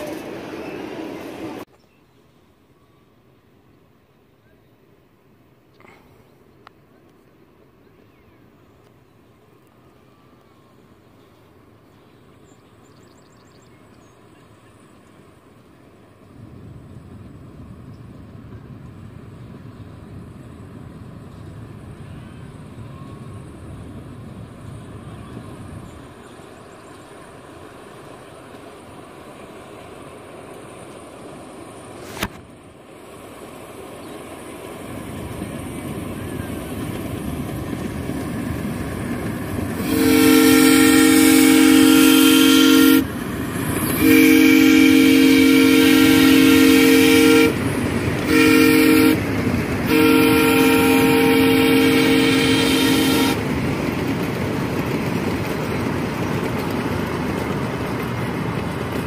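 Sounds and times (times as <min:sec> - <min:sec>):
rumble of miniature train passing: 0:00.0 - 0:59.0
steam locomotive whistle: 0:39.8 - 0:43.1, 0:43.8 - 0:53.5.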